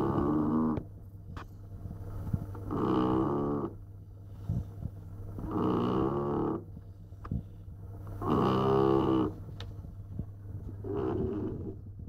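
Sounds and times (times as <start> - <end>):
dog snoring: 0.0 - 0.8, 2.7 - 3.8, 5.4 - 6.7, 8.2 - 9.4, 10.8 - 11.8.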